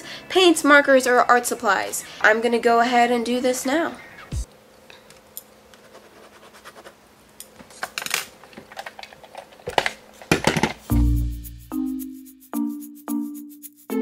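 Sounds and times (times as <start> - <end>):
music: 0.0 - 2.4, 10.8 - 14.0
pens scribbling on paper: 5.8 - 7.0.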